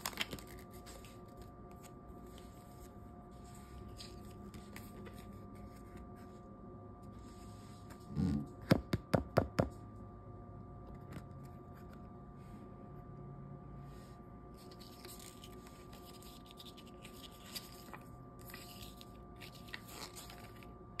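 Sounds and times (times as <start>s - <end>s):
paper rustling: 0.0s - 6.0s, 14.6s - 20.7s.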